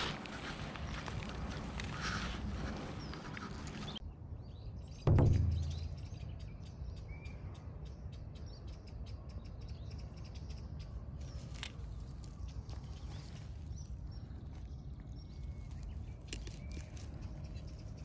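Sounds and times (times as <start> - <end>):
birds chirping: 0.0 - 18.0
heavy thump: 5.1 - 6.2.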